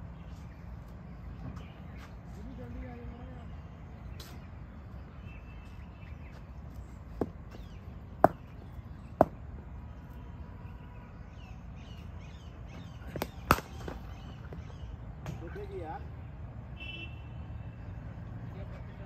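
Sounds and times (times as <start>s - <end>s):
birds chirping faintly: 0.0s - 19.0s
cricket bat hitting ball: 8.2s - 8.5s, 13.1s - 14.0s.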